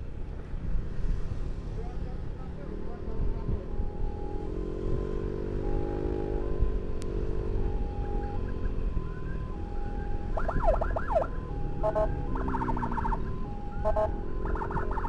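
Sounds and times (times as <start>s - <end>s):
two-tone emergency siren: 3.4s - 15.0s.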